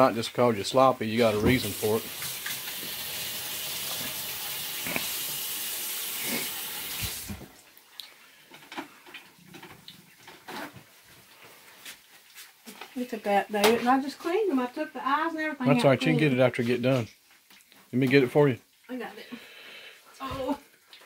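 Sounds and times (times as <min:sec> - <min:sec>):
faucet running over hands: 0:01.0 - 0:07.5.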